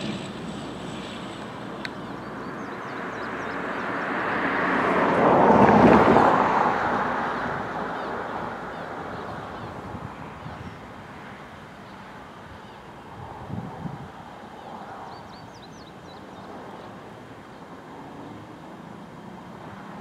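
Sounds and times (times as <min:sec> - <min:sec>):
vehicle passing close by: 0:00.0 - 0:11.4.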